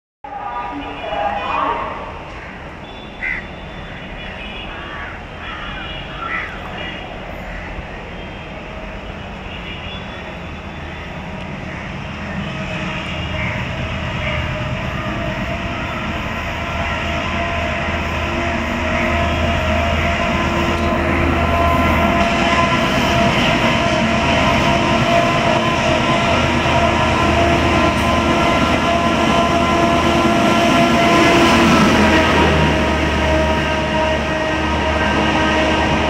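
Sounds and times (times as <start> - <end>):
diesel locomotive engine: 0.2 - 36.0
continuous locomotive horn: 0.3 - 36.0.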